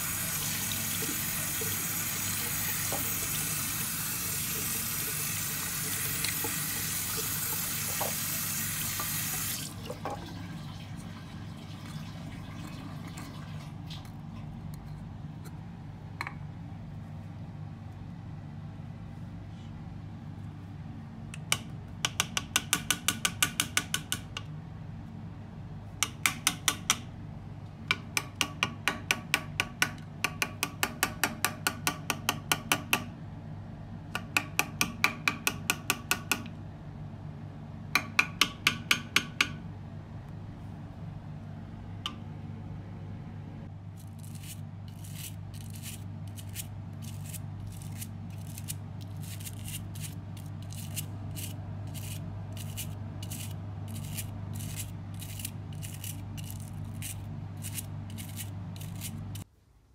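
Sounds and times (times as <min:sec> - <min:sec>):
tap water running into basin: 0:00.0 - 0:14.2.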